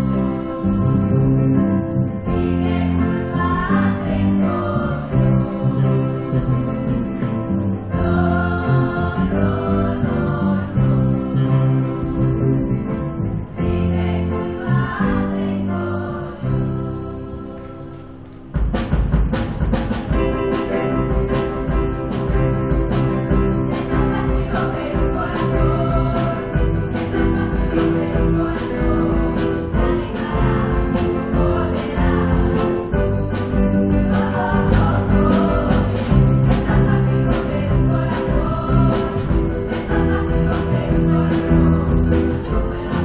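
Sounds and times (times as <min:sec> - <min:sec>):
choir singing: 0:00.0 - 0:12.8, 0:13.5 - 0:18.4, 0:20.2 - 0:43.0
live band playing: 0:18.5 - 0:43.0
drum kit beat: 0:18.6 - 0:43.0.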